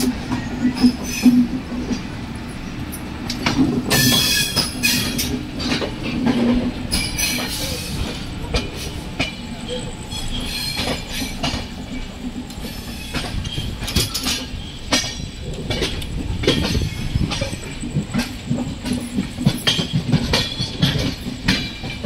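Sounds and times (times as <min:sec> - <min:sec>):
train rumble: 0:00.0 - 0:22.0
wheels clattering over rail joints: 0:00.0 - 0:22.0
wheels squealing: 0:03.5 - 0:06.2, 0:06.9 - 0:17.8.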